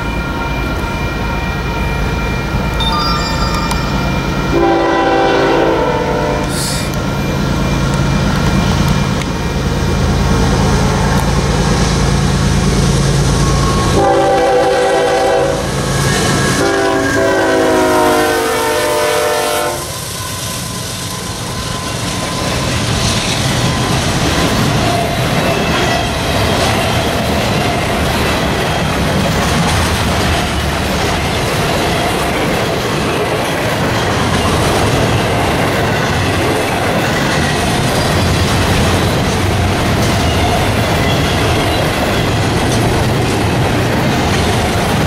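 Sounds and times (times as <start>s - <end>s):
diesel locomotives running: 0.0s - 45.0s
rail and wheel noise: 0.0s - 45.0s
train horn blasts: 4.5s - 6.9s, 13.6s - 20.1s.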